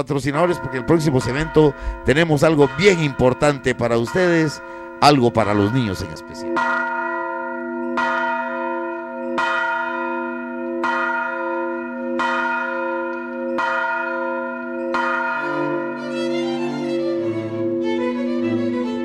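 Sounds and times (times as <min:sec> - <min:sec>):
bell tolling: 0:00.4 - 0:18.0.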